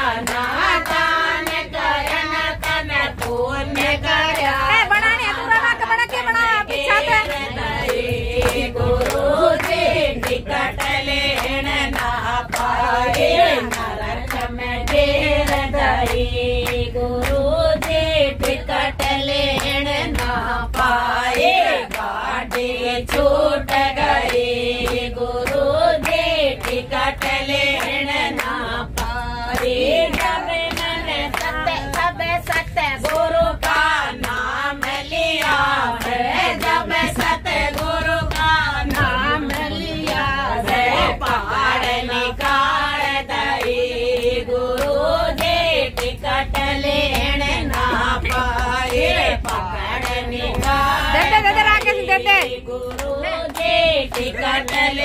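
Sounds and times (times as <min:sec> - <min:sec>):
group singing devotional song: 0:00.0 - 0:55.0
hand-clapping in time: 0:00.0 - 0:55.0.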